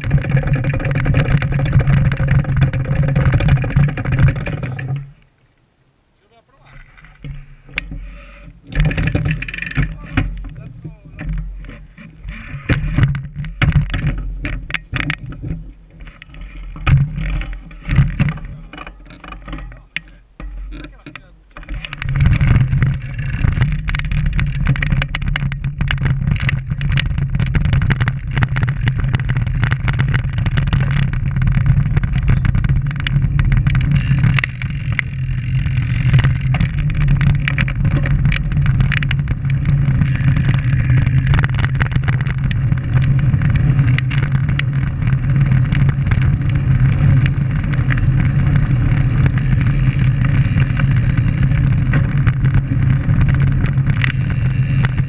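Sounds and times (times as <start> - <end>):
small knocks and rattles: 0.0 - 5.3, 6.7 - 55.0
bike tyres rumbling on road: 0.0 - 5.4, 6.6 - 55.0.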